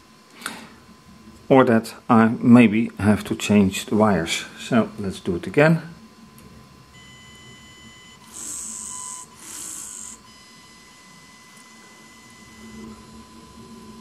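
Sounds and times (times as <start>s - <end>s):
faint high-pitched electronic whine: 0.0s - 14.0s
pneumatic hissing bursts: 8.2s - 10.3s.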